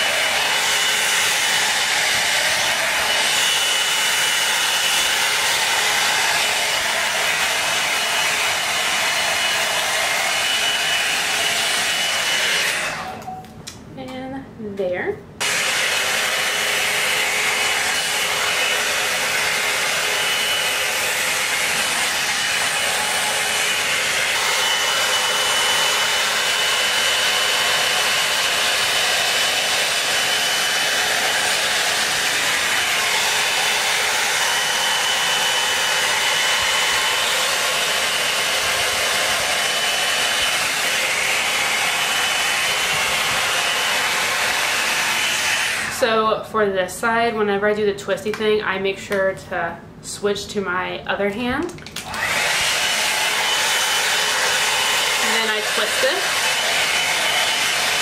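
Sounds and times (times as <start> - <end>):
blow dryer brush running: 0.0 - 13.4, 15.4 - 46.4, 51.7 - 58.0.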